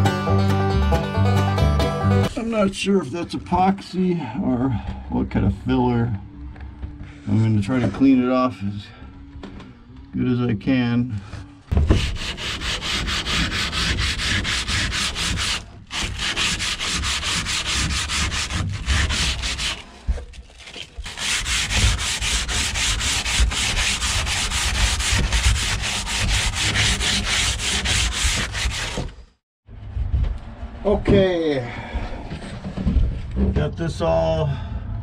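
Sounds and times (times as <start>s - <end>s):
sanding rasping: 11.8s - 20.0s, 21.0s - 29.2s.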